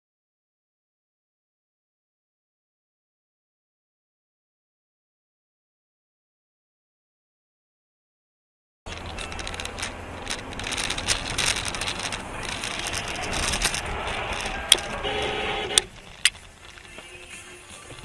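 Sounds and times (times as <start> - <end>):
car road and engine noise: 8.9 - 18.0.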